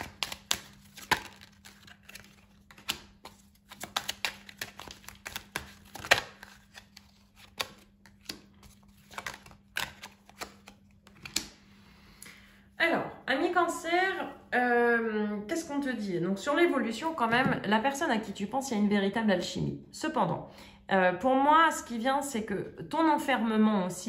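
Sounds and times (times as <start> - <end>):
card slaps: 0.0 - 6.8, 7.4 - 11.6
cards being shuffled: 0.0 - 11.6.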